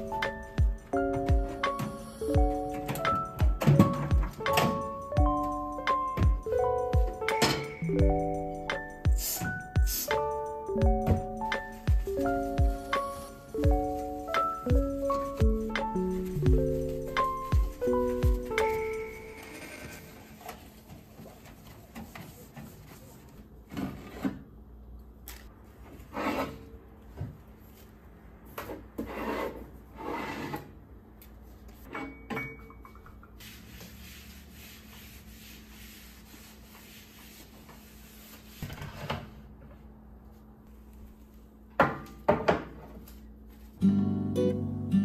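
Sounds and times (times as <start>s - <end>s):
cloth wiping surfaces: 12.1s - 19.4s, 33.4s - 38.6s.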